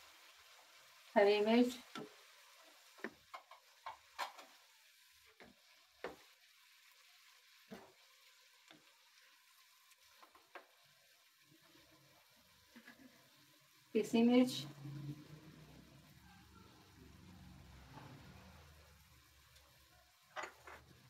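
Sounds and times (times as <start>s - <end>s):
faint sizzle of frying: 0.0s - 21.0s
wooden spatula scraping wok: 1.7s - 9.4s.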